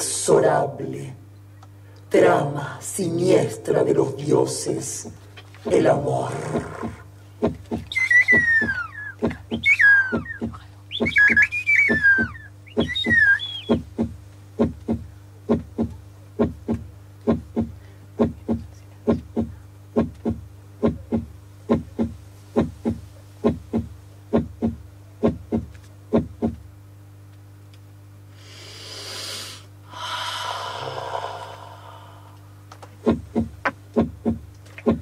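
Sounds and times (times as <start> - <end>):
steady low hum: 0.0 - 35.0
heartbeat-like thumps: 6.5 - 26.6, 33.0 - 35.0
hiss: 28.3 - 32.4.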